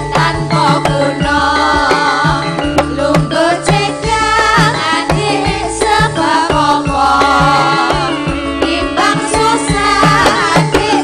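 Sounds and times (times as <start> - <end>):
bass: 0.0 - 11.0
hand drum beat: 0.0 - 11.0
sustained melodic instruments: 0.0 - 11.0
wavering vocal line: 0.0 - 11.0.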